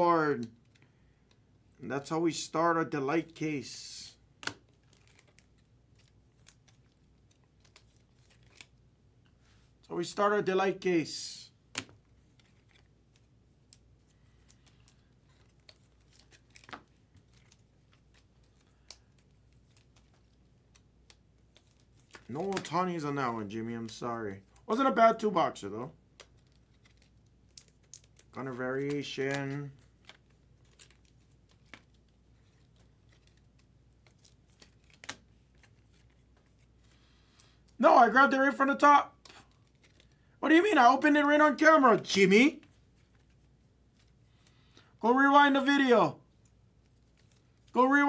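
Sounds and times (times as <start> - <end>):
trading cards clicking and rustling: 4.4 - 9.4, 11.5 - 25.3, 26.1 - 37.8, 39.2 - 44.9.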